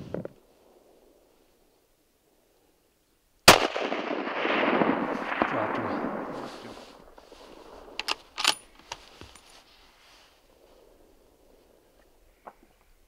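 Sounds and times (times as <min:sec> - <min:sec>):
rifle shot: 0:03.5 - 0:08.6
rolling echo: 0:03.5 - 0:08.8.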